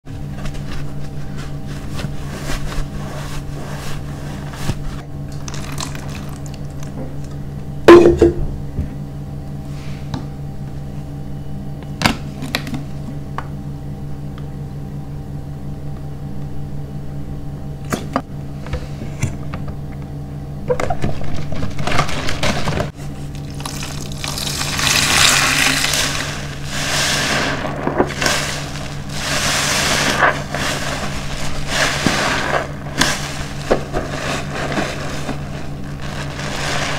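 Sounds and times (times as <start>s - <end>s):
steady low hum: 0.0s - 36.9s
soapy sponge squelching: 23.5s - 36.9s.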